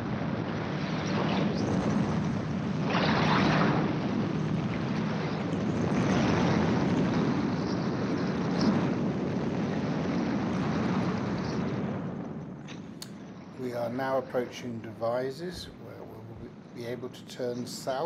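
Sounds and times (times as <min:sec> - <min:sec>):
engine and rotor drone: 0:00.0 - 0:13.6
wind rushing: 0:00.0 - 0:18.0.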